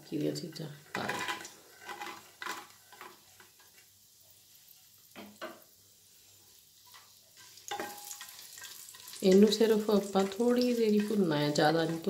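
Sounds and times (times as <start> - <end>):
faint sizzle: 0.0 - 12.0
spatula stirring and scraping pot: 0.3 - 3.9, 6.8 - 12.0.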